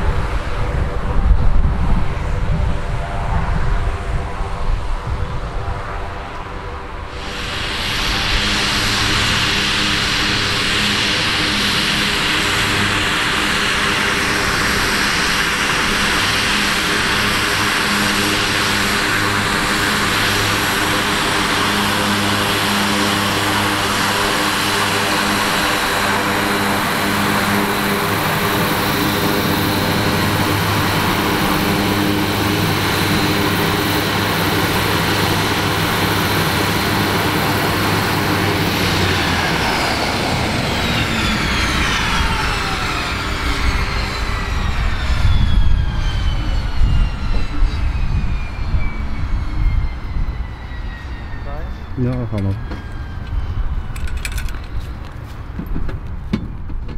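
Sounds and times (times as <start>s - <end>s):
turboprop engine running: 0.0s - 56.9s
turbine hiss: 7.0s - 44.2s.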